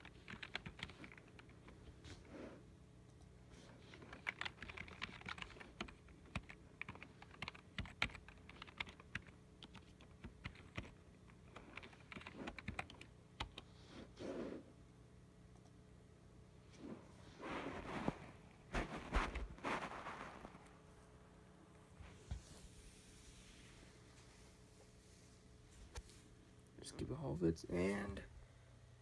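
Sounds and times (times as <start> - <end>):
computer keyboard typing: 0.0 - 1.8, 3.9 - 13.7
faint steady hum: 0.0 - 29.0.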